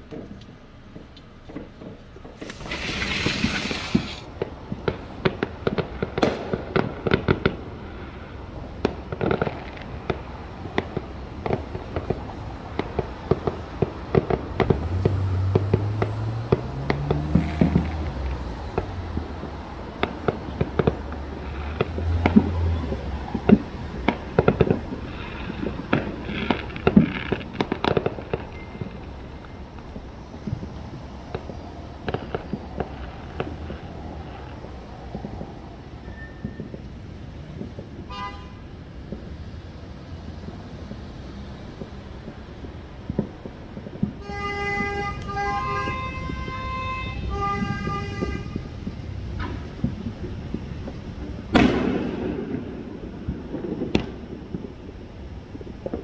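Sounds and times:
fireworks bangs and pops: 0:00.0 - 0:56.0
horn long tones: 0:44.2 - 0:48.8.

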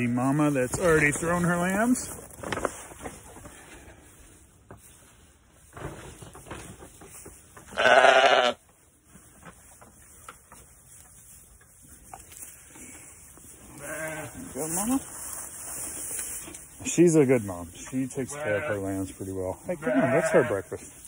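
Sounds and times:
faint rustling and knocks: 0:00.6 - 0:07.8, 0:08.6 - 0:13.6
sheep bleating: 0:07.7 - 0:08.6, 0:13.7 - 0:14.4, 0:18.3 - 0:18.9, 0:19.7 - 0:20.8.

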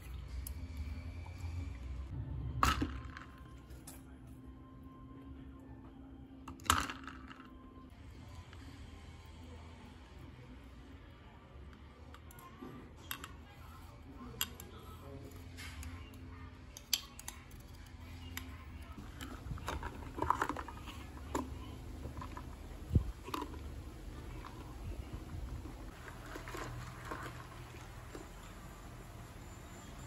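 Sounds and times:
ice cubes clinking in plastic cup: 0:25.9 - 0:28.4.

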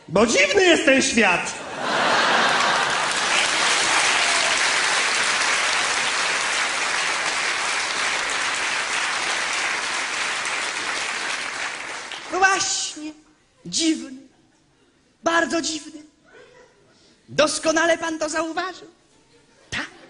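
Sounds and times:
audience applauding: 0:01.8 - 0:12.4.

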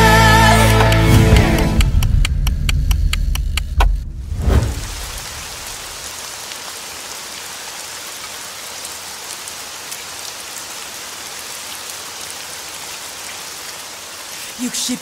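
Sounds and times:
rain falling: 0:00.0 - 0:15.0
raindrops tapping: 0:00.7 - 0:04.0.

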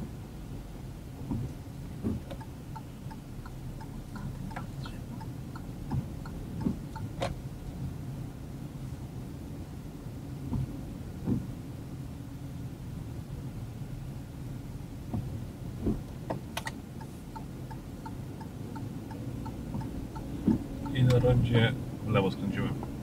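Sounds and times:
turn signal ticking: 0:00.0 - 0:07.9, 0:10.2 - 0:11.5, 0:15.0 - 0:23.0
engine and tyres on wet road: 0:00.0 - 0:23.0.

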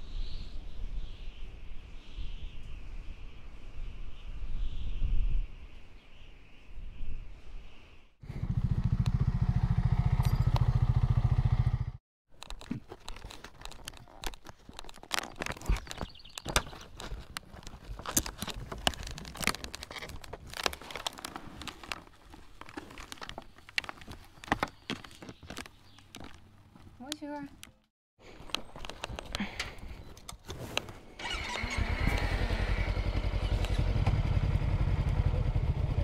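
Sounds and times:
motorcycle engine running: 0:08.2 - 0:12.0, 0:31.2 - 0:36.0.

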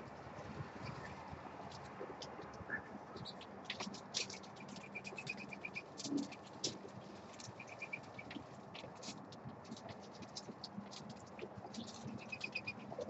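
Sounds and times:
doves pecking and scratching seed: 0:00.0 - 0:13.0
small bird chirping: 0:04.2 - 0:06.4, 0:07.4 - 0:08.4, 0:11.7 - 0:13.0.

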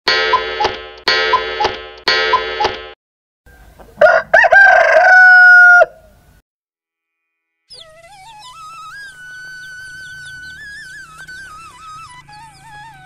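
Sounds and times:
rooster crowing: 0:04.0 - 0:06.2.

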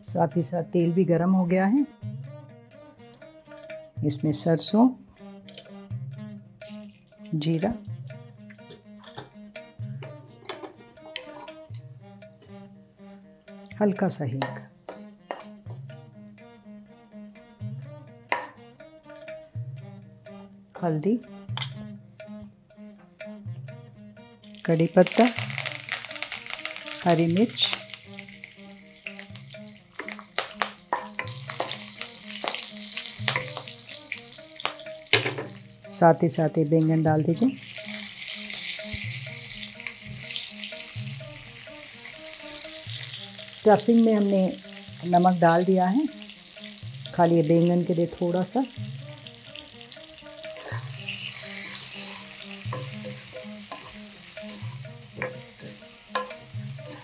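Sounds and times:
spatula knocking against pan: 0:08.6 - 0:12.0, 0:14.4 - 0:16.6, 0:17.7 - 0:19.8, 0:29.1 - 0:35.8, 0:51.6 - 0:57.0
spatula scraping pan: 0:10.0 - 0:12.6, 0:14.4 - 0:15.8, 0:49.4 - 0:57.0
leaves sizzling in hot oil: 0:24.4 - 0:57.0.

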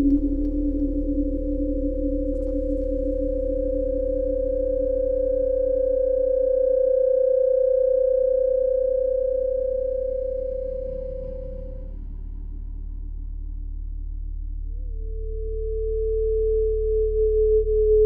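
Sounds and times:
low hum: 0:00.0 - 0:06.2
steady pure tone: 0:00.0 - 0:13.0.

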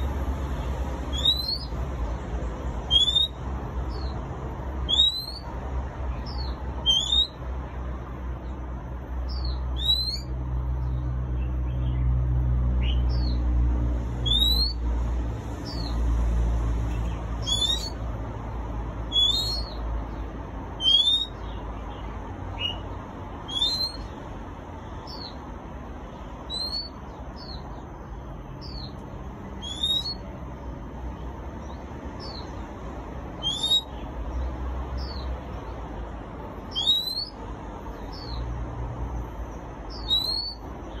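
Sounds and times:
bird whistling song: 0:01.1 - 0:01.8, 0:02.9 - 0:04.2, 0:04.8 - 0:05.5, 0:06.2 - 0:07.4, 0:09.3 - 0:10.3, 0:14.2 - 0:14.8, 0:15.6 - 0:16.0, 0:17.0 - 0:18.0, 0:19.1 - 0:19.8, 0:20.8 - 0:24.2, 0:25.0 - 0:25.4, 0:26.5 - 0:27.6, 0:29.6 - 0:30.3, 0:33.4 - 0:34.0, 0:36.7 - 0:37.4, 0:39.9 - 0:41.0.

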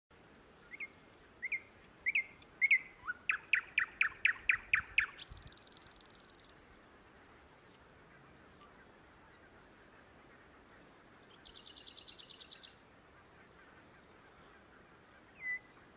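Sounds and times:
thrush nightingale singing: 0:00.4 - 0:07.2, 0:11.3 - 0:12.8, 0:15.3 - 0:15.9.

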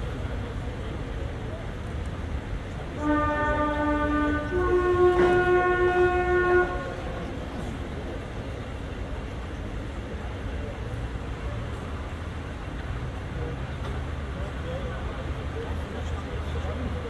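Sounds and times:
two-tone train horn: 0:02.9 - 0:07.5.

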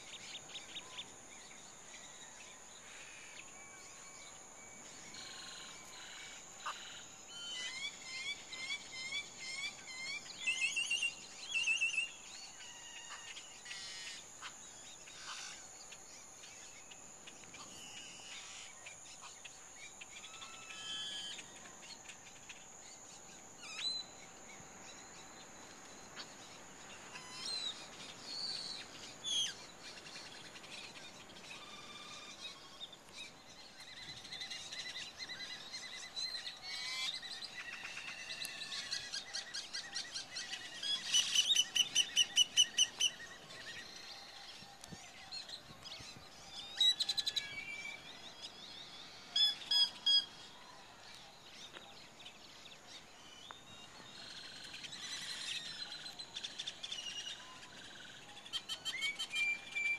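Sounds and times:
birds chirping and calling: 0:26.2 - 0:50.6.

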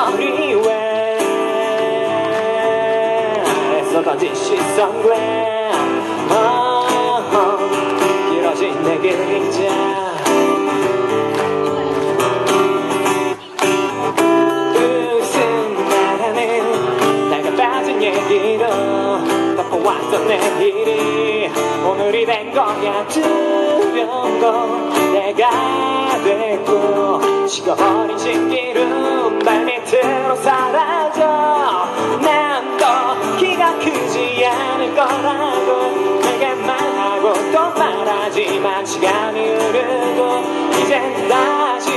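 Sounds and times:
man singing: 0:00.0 - 0:11.2, 0:13.0 - 0:41.9
acoustic guitar strumming: 0:00.0 - 0:41.9.

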